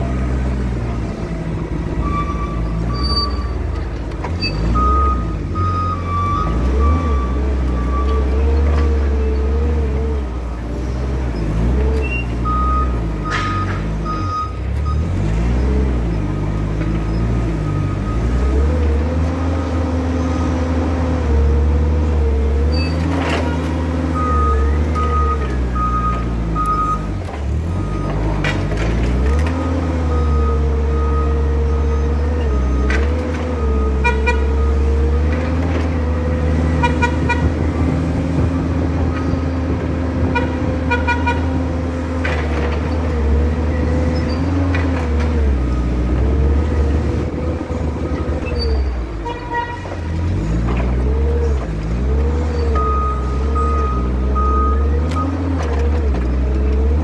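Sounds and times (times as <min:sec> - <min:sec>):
forklift drive hum: 0:00.0 - 0:57.0
forklift horn beeps: 0:01.8 - 0:03.7, 0:04.4 - 0:08.4, 0:12.0 - 0:15.2, 0:33.6 - 0:35.0, 0:36.7 - 0:37.9, 0:40.2 - 0:41.6, 0:48.1 - 0:50.2.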